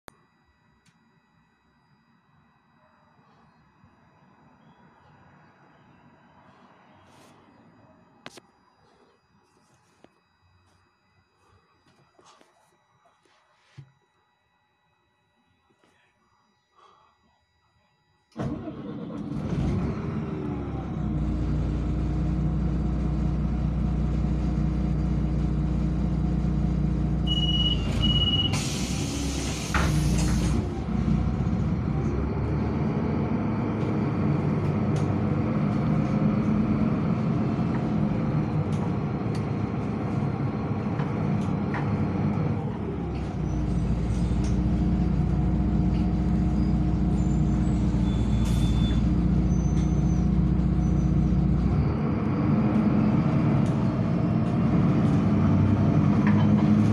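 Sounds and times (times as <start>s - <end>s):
bus engine running: 18.4s - 56.9s
short high beeps: 27.3s - 28.6s
compressed air hiss: 28.5s - 30.5s.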